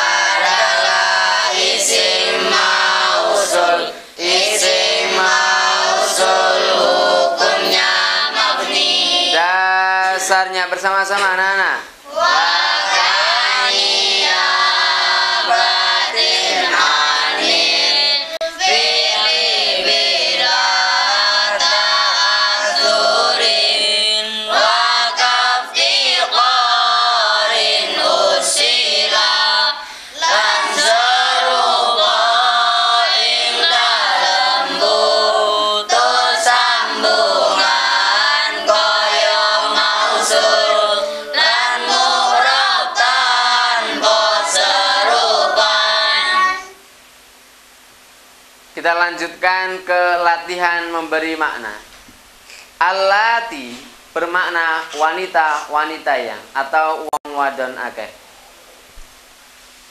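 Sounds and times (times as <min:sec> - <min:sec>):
boys chanting in unison: 0:00.0 - 0:10.3, 0:12.0 - 0:46.8.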